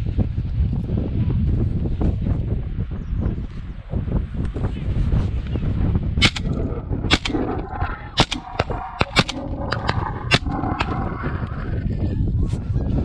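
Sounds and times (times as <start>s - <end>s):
shotgun blasts: 6.2s - 6.5s, 7.1s - 7.4s, 8.2s - 9.4s.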